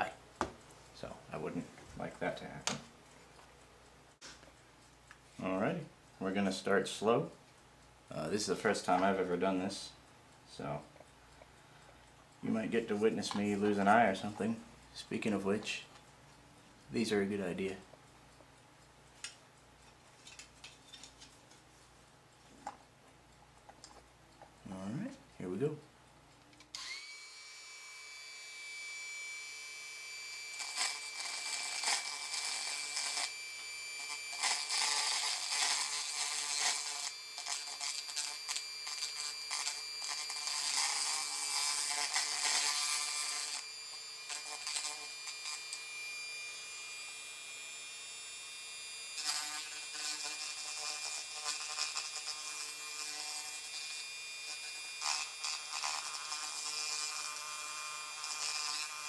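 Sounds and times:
rotary tool whining: 0:26.7 - 0:59.0.

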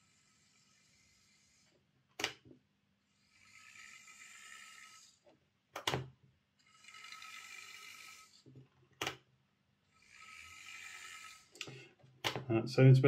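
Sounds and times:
model locomotive motor whining: 0:00.0 - 0:01.8, 0:03.1 - 0:05.3, 0:06.6 - 0:08.5, 0:09.9 - 0:11.7.

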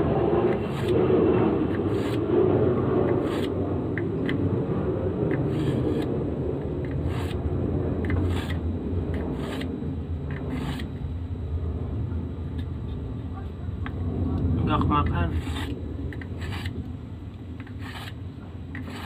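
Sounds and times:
low rumble: 0:00.0 - 0:17.6
knife scraping on ceramic hone: 0:09.2 - 0:09.7, 0:10.3 - 0:10.9, 0:15.4 - 0:16.8, 0:17.6 - 0:19.0.

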